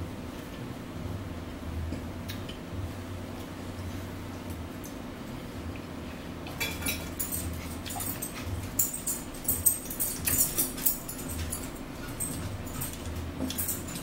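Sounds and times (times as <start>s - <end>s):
steady low hum: 0.0s - 14.0s
forks clinking on plates: 6.5s - 14.0s.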